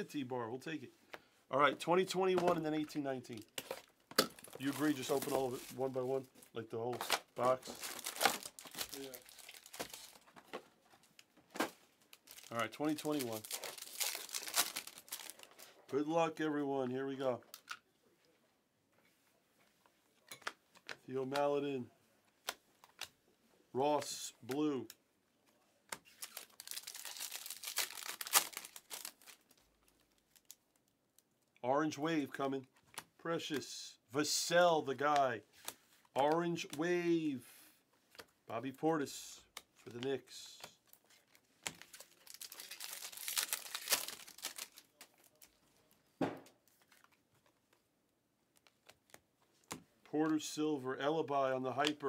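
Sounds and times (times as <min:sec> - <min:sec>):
wrapper crinkling and tearing: 0:03.4 - 0:06.0, 0:07.0 - 0:10.4, 0:12.1 - 0:15.8, 0:26.1 - 0:30.9, 0:40.9 - 0:45.6.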